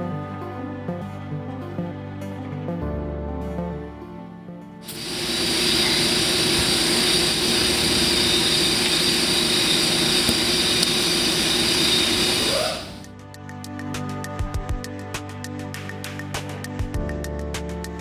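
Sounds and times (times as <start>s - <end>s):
machine humming with hiss: 4.9s - 13.1s.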